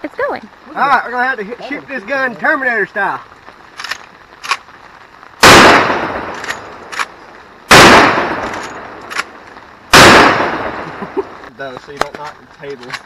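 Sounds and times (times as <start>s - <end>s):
rifle shots: 5.4s - 11.0s.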